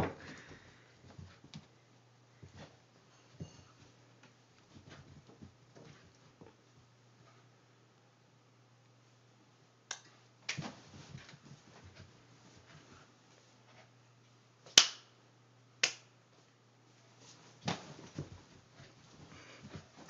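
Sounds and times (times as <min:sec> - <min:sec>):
faint low hum: 0:00.0 - 0:20.0
sharp snapping clicks: 0:14.8 - 0:15.1, 0:15.8 - 0:16.1.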